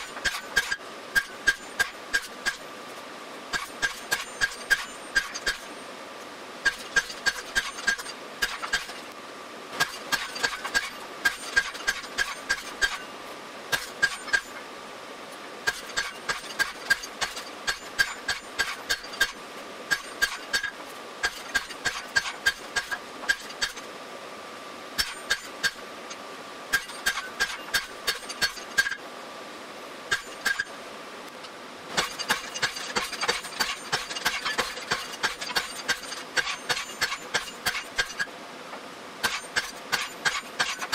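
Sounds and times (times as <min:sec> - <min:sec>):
hammer striking metal on anvil: 0:00.0 - 0:02.6, 0:03.5 - 0:05.7, 0:09.8 - 0:13.1, 0:13.7 - 0:14.6, 0:15.6 - 0:23.8, 0:25.0 - 0:25.8, 0:26.7 - 0:29.0, 0:30.1 - 0:30.7, 0:32.0 - 0:38.3, 0:39.2 - 0:40.9
steady hum: 0:00.0 - 0:40.9.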